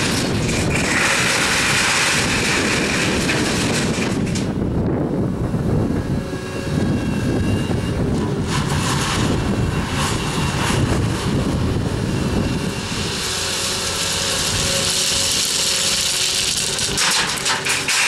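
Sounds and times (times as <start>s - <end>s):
stones rattling and scraping: 0.0s - 4.5s, 14.5s - 18.0s
diesel engine working hard: 0.0s - 18.0s.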